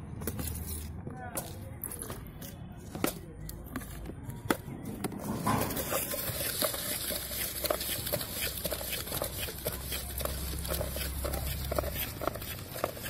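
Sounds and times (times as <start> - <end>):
spoon scraping plastic mug: 5.6 - 13.0.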